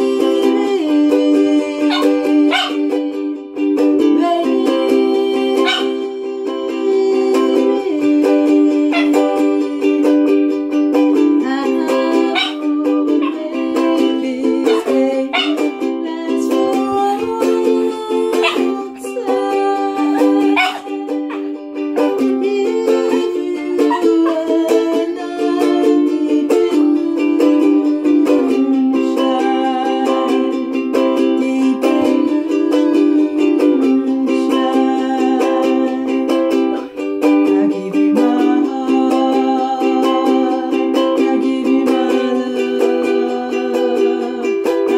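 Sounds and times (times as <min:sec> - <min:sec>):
ukulele strumming: 0:00.0 - 0:44.9
woman singing: 0:00.0 - 0:44.9
dog howling: 0:01.8 - 0:02.8, 0:05.6 - 0:06.0, 0:08.9 - 0:09.2, 0:12.3 - 0:12.6, 0:14.7 - 0:15.6, 0:18.4 - 0:18.7, 0:20.1 - 0:21.5.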